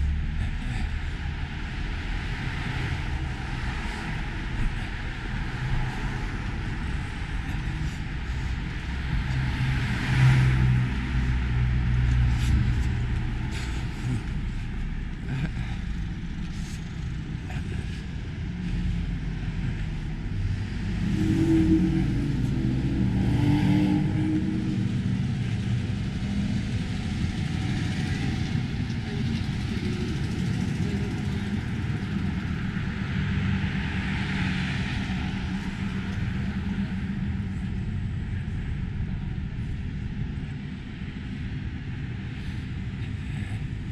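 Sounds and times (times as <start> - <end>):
cars passing: 0.0 - 43.9
steady low rumble: 0.0 - 43.9.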